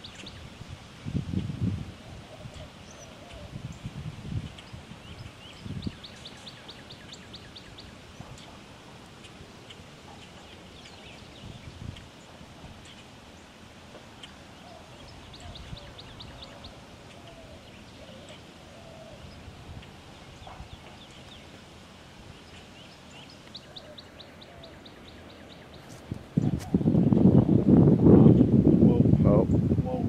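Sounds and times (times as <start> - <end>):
wind-like rushing noise: 0.0 - 10.1, 10.7 - 30.0
soft bird chirps: 22.3 - 26.7.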